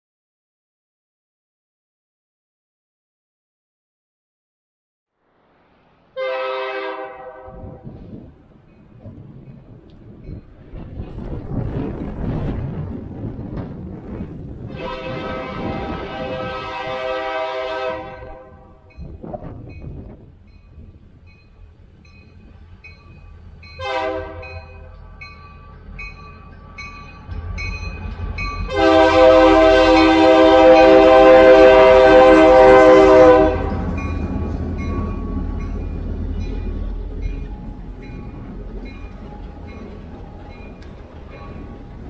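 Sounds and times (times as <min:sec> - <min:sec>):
low rumble of locomotives: 0:05.4 - 0:42.0
locomotive air horn: 0:06.2 - 0:07.8, 0:14.7 - 0:18.9, 0:23.8 - 0:24.9, 0:28.7 - 0:33.9
crossing warning bell ringing: 0:18.2 - 0:42.0.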